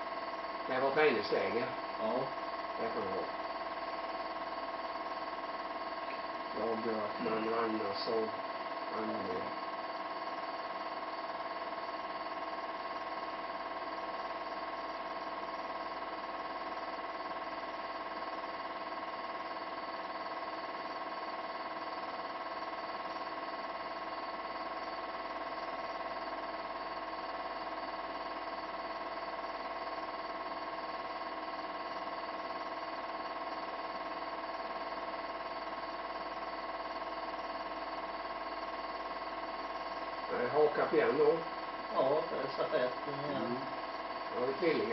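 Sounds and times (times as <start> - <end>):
steady buzzing hum: 0.0 - 44.9.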